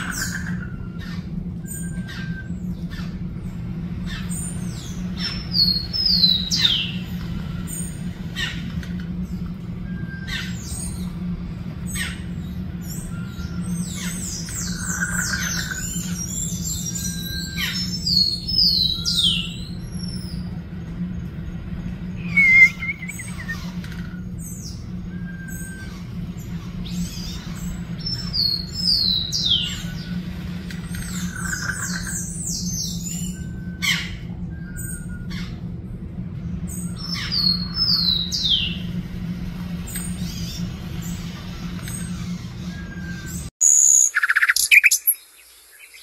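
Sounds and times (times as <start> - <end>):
birds chirping: 0.0 - 46.0
steady low hum: 0.0 - 46.0
shrill descending squawks: 22.2 - 23.6.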